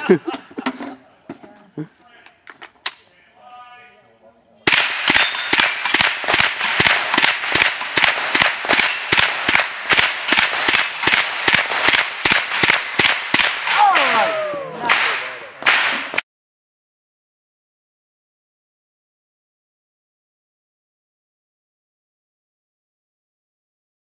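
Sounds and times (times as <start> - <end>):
rifle shots: 4.6 - 14.2, 14.8 - 16.2
steel targets clanging: 5.0 - 14.2.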